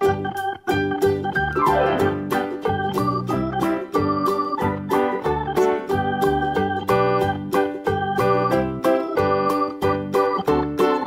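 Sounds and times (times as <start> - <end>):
music of short repeated chords: 0.3 - 4.6.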